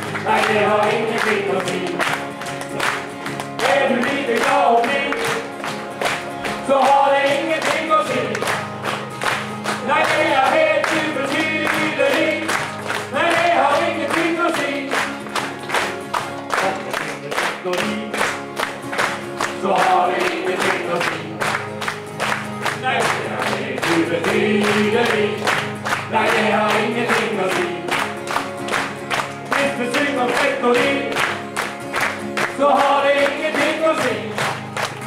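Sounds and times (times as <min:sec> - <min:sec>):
group singing gospel-style song: 0:00.0 - 0:02.2, 0:03.5 - 0:05.6, 0:06.5 - 0:08.4, 0:09.8 - 0:15.2, 0:19.5 - 0:21.4, 0:22.8 - 0:28.1, 0:29.5 - 0:31.4, 0:32.4 - 0:34.6
strummed acoustic guitars: 0:00.0 - 0:35.0.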